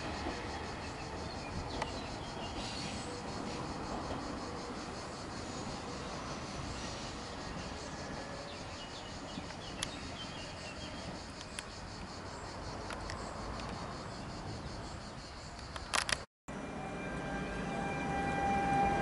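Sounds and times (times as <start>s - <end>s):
insects chirring: 0.0s - 19.0s
sharp clicks: 15.6s - 16.3s.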